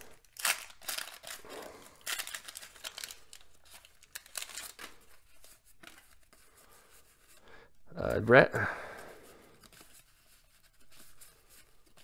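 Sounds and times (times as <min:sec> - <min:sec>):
paper wrapper crinkling and tearing: 0:00.0 - 0:06.6
cardboard cards rustling: 0:00.0 - 0:07.4, 0:08.0 - 0:12.0.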